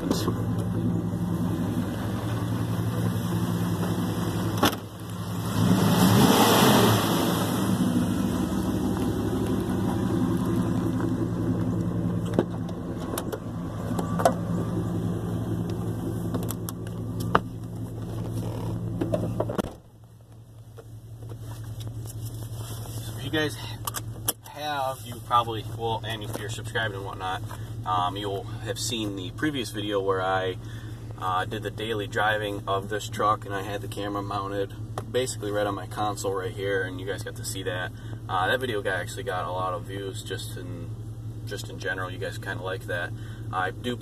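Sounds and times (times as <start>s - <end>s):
pickup engine idling: 0.0s - 44.0s
car door shutting: 3.7s - 5.0s, 12.2s - 14.6s, 15.6s - 19.9s.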